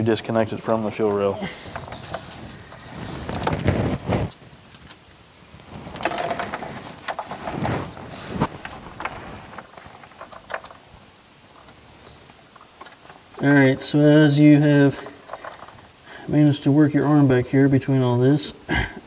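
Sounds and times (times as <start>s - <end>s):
wiring harness rustling and scraping: 0.7s - 10.8s, 14.8s - 15.9s.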